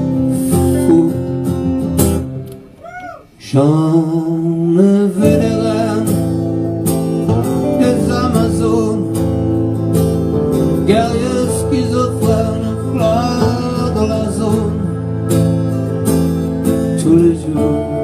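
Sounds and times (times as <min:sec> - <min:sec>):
man singing: 0:00.0 - 0:01.4, 0:03.4 - 0:09.8, 0:10.7 - 0:15.3, 0:16.7 - 0:18.0
guitars strumming: 0:00.0 - 0:02.8, 0:03.4 - 0:18.0.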